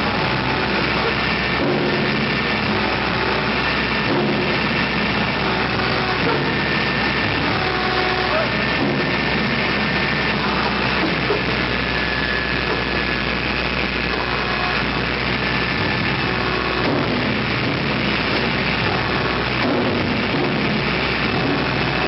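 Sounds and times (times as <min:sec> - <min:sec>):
heavy machinery droning: 0:00.0 - 0:22.0.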